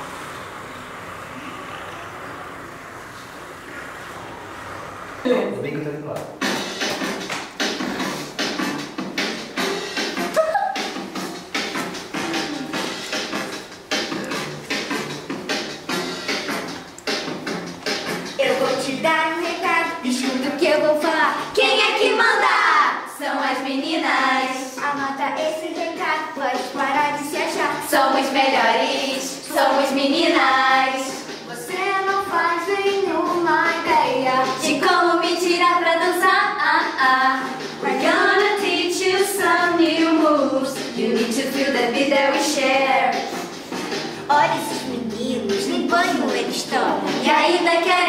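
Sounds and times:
children singing together: 18.4 - 43.5, 44.3 - 48.0.

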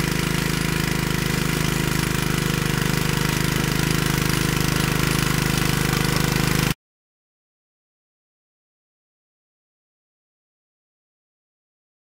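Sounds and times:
single-cylinder engine running: 0.0 - 6.8
tines churning soil: 0.0 - 6.8.

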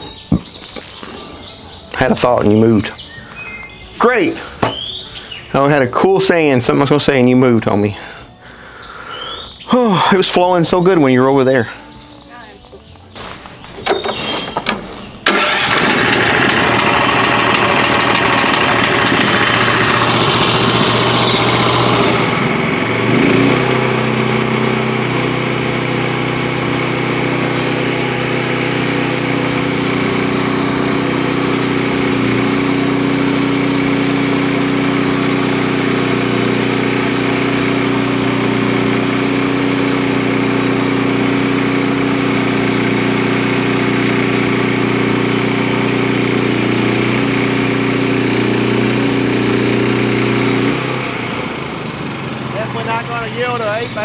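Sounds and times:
band saw blade cutting log: 13.9 - 51.0
small gasoline engine running: 15.2 - 54.0.

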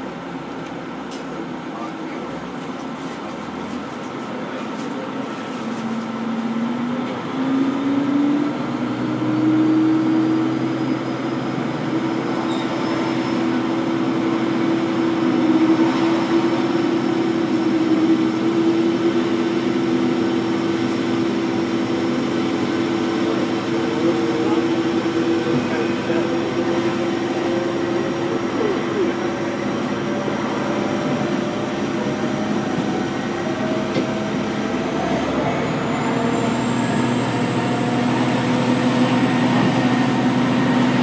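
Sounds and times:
diesel railcar engine running: 0.0 - 41.0.

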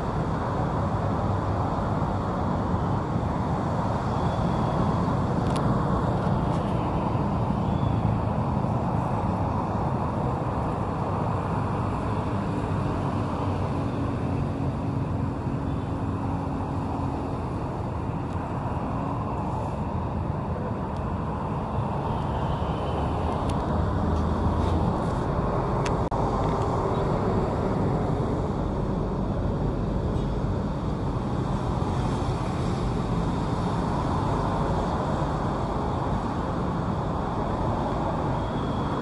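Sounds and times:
road traffic hum: 0.0 - 39.0.

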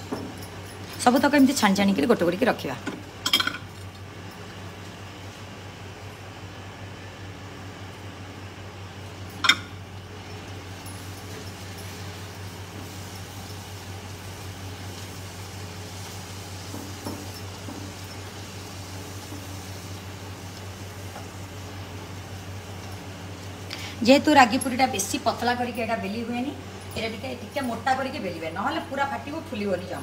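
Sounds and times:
oil sizzling: 8.7 - 29.6.

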